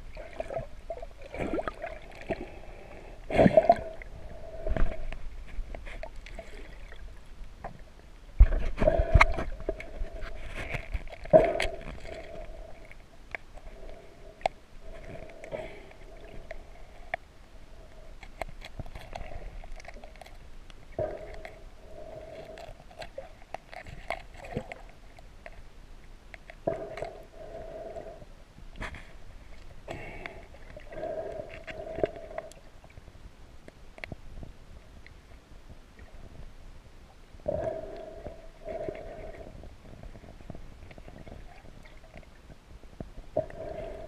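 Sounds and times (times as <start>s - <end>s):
water movement: 0.0s - 33.1s, 37.3s - 44.0s
muffled underwater clicks and knocks: 8.4s - 12.5s.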